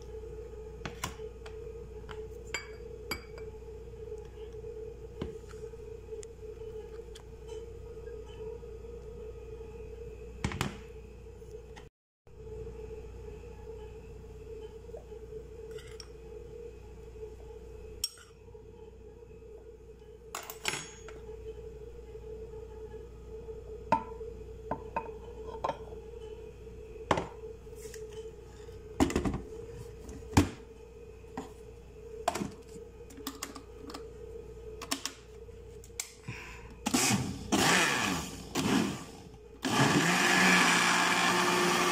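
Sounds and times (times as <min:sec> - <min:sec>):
low hum: 0:00.0 - 0:39.9
blender motor running: 0:36.8 - 0:41.9.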